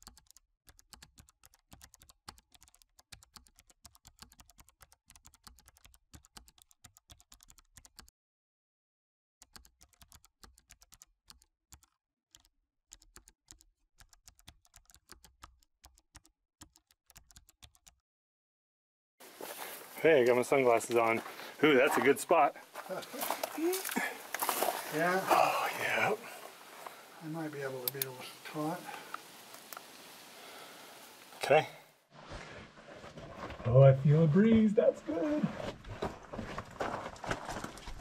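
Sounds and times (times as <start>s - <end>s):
faint rapid clicking: 0.0s - 8.1s.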